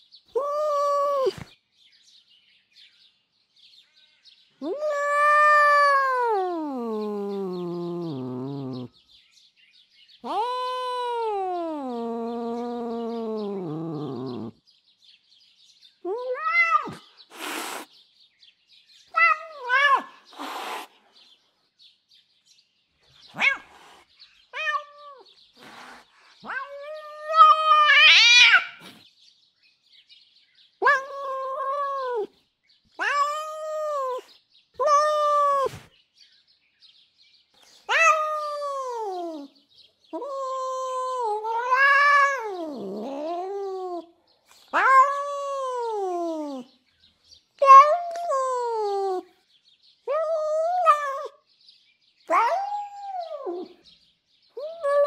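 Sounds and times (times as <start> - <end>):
cat meowing: 4.6 - 8.8, 10.2 - 14.5, 16.1 - 17.8, 19.1 - 20.8, 23.3 - 23.8, 24.5 - 25.3, 26.4 - 28.9, 30.8 - 32.3, 33.0 - 35.9, 37.9 - 39.5, 40.2 - 46.6, 47.6 - 49.2, 50.1 - 51.3, 52.3 - 53.7
cat screeching: 4.6 - 8.8, 10.2 - 14.5, 16.1 - 17.9, 19.1 - 20.9, 23.3 - 23.9, 24.5 - 25.8, 26.4 - 29.0, 30.8 - 32.3, 33.0 - 35.9, 37.9 - 39.5, 40.2 - 44.0, 44.6 - 46.6, 47.6 - 49.2, 50.2 - 51.3, 52.3 - 53.7
cat hissing: 16.4 - 18.0, 19.2 - 21.1, 23.3 - 29.0, 35.4 - 35.9, 41.3 - 43.4.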